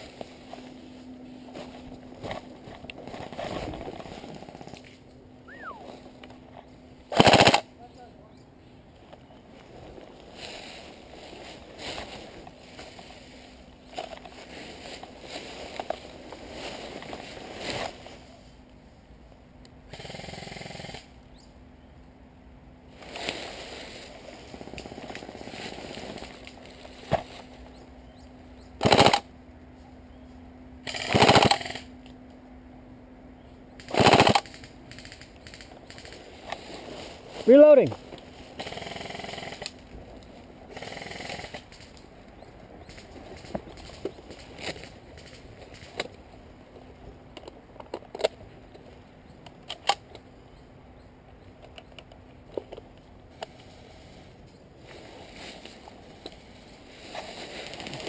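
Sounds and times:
airsoft gun full-auto bursts: 7.1 - 7.7, 28.8 - 29.3, 30.8 - 31.9, 33.9 - 36.2.

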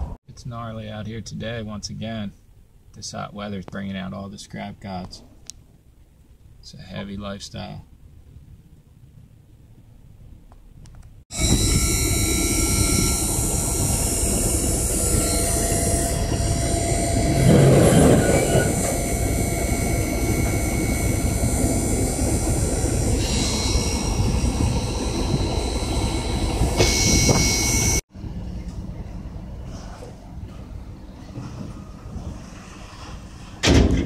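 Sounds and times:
vehicle rumbling and rattling: 7.9 - 34.0
thin metallic squeals: 11.4 - 28.0.

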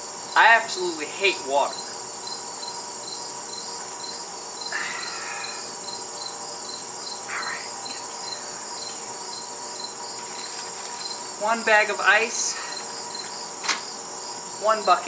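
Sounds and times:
crickets chirping: 0.0 - 15.0
goggles rustling: 10.1 - 11.2.

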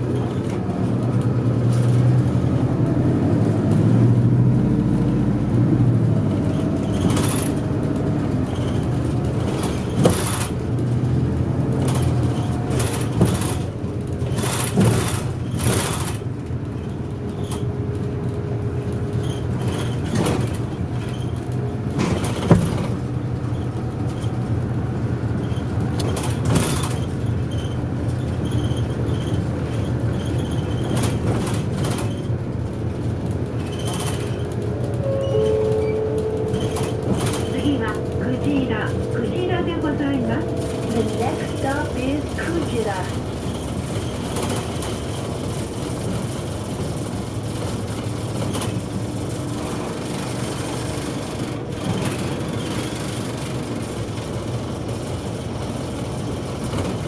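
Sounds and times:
bus engine drone: 0.0 - 57.0
rattles and knocks from bus body: 0.0 - 57.0
road noise: 0.0 - 57.0.

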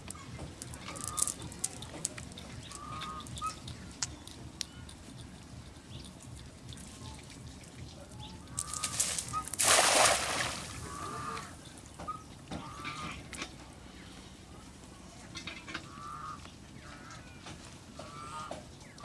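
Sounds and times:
net splashing on water: 8.6 - 11.2.

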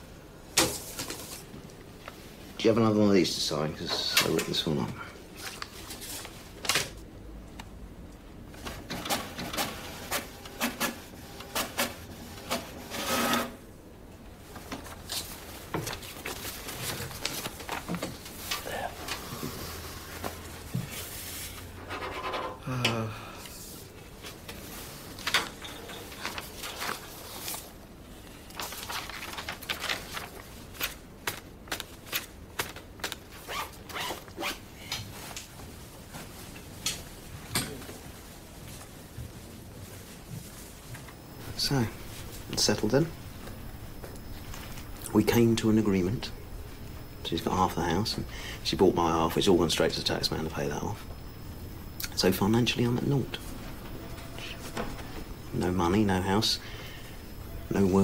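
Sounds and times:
paper rustling on glass: 28.5 - 31.0.

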